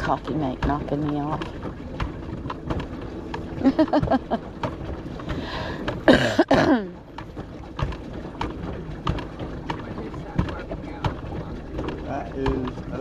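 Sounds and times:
low rumble: 0:00.0 - 0:06.1
pedal boat clicks and knocks: 0:00.0 - 0:13.0.

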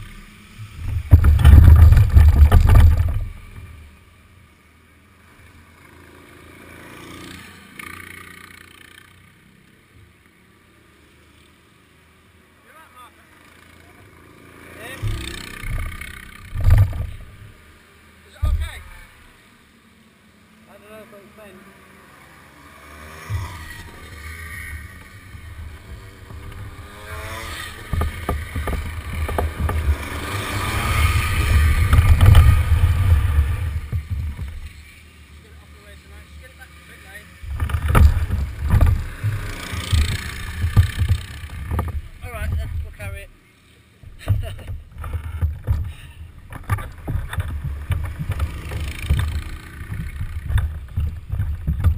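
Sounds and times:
kart engines passing by: 0:00.0 - 0:51.9
camera handling knocks and rubbing: 0:00.8 - 0:03.3, 0:15.0 - 0:17.6, 0:27.7 - 0:30.1, 0:37.4 - 0:43.0, 0:44.1 - 0:51.9.

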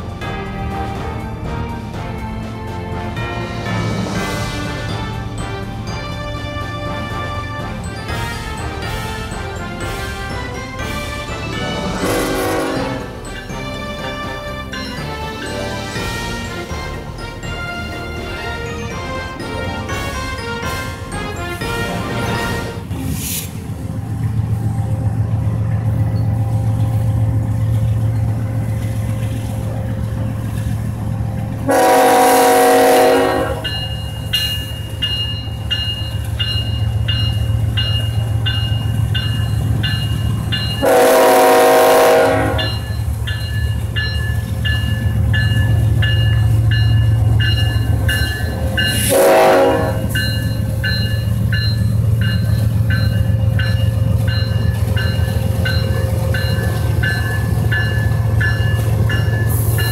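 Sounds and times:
crossing bell ringing: 0:00.0 - 0:59.9
diesel locomotive engine rumble: 0:00.0 - 0:59.9
train horn blasts: 0:03.0 - 0:22.9, 0:31.6 - 0:33.9, 0:40.8 - 0:43.0, 0:48.8 - 0:50.4.

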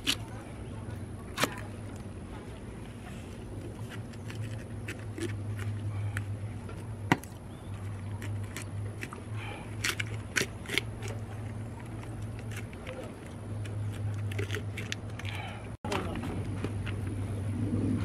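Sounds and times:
steady low hum: 0:00.0 - 0:18.0
knife scraping fish scales: 0:03.6 - 0:06.4, 0:07.7 - 0:15.5.

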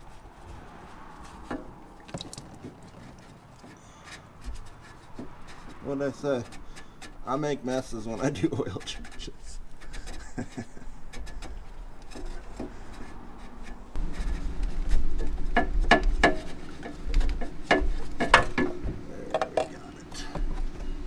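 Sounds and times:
filter housing scraping: 0:08.0 - 0:21.0
sharp clicks and knocks: 0:08.7 - 0:21.0.

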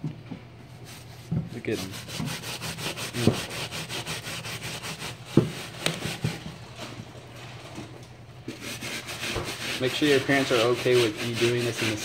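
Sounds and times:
brush scrubbing a wet sneaker: 0:00.8 - 0:06.8, 0:08.5 - 0:12.0.

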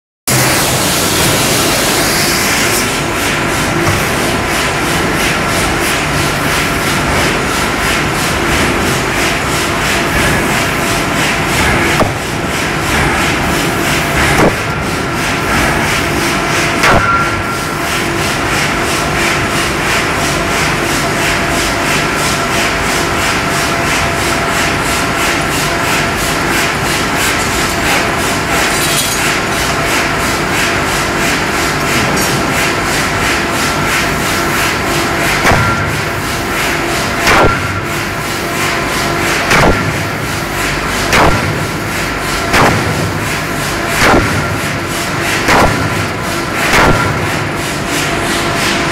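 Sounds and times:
furnace roaring with hum: 0:00.3 - 0:48.9
sharp knocks: 0:11.6 - 0:12.3, 0:14.2 - 0:14.8, 0:16.8 - 0:17.4, 0:37.2 - 0:37.8, 0:39.5 - 0:40.1, 0:41.1 - 0:41.7, 0:42.5 - 0:43.3, 0:44.0 - 0:44.7, 0:45.4 - 0:46.0, 0:46.6 - 0:47.4.

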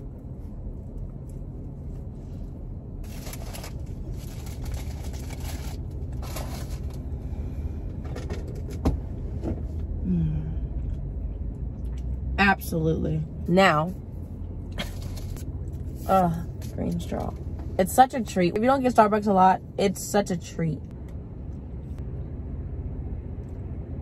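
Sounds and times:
car engine rumble inside cabin: 0:00.0 - 0:24.0
person humming: 0:10.0 - 0:10.7.

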